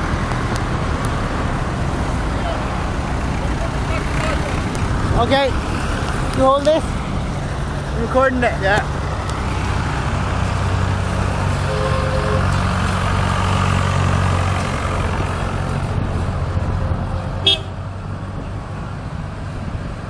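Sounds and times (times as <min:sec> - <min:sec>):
vehicle engines driving past: 0:00.0 - 0:20.0
two-note horn toot: 0:11.6 - 0:12.5.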